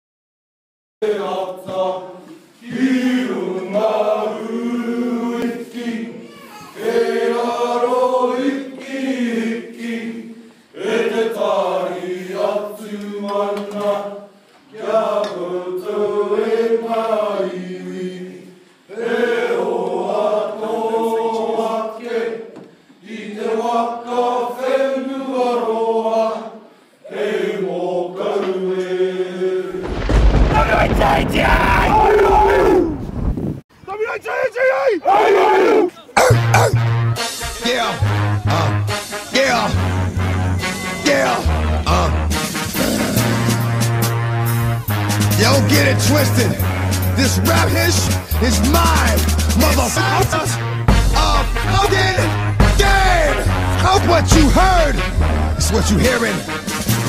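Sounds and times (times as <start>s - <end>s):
voices chanting in harmony: 1.0s - 32.5s, 34.1s - 57.0s
breaths: 10.4s - 10.8s, 18.5s - 18.9s, 22.6s - 23.0s, 26.6s - 27.1s.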